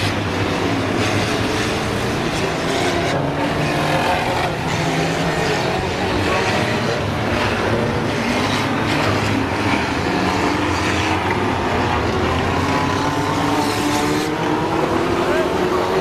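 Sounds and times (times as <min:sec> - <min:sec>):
race car engines droning: 0:00.0 - 0:16.0.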